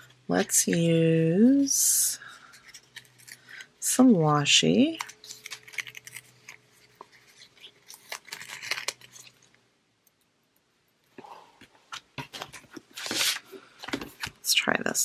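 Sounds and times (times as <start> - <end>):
tape clicking and crackling: 4.9 - 14.4.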